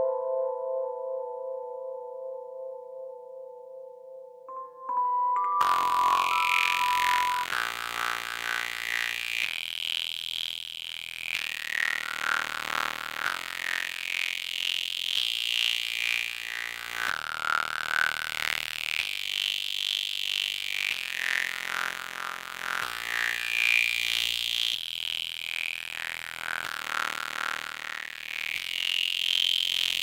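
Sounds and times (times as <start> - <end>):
filtered hip-hop beat: 4.5 - 7.6.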